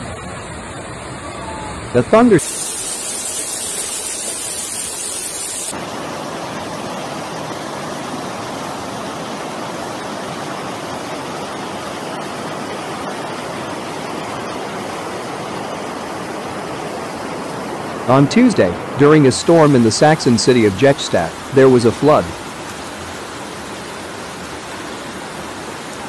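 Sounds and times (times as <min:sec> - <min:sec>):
floodwater rushing: 0:00.0 - 0:26.0
bright hiss: 0:02.4 - 0:05.8.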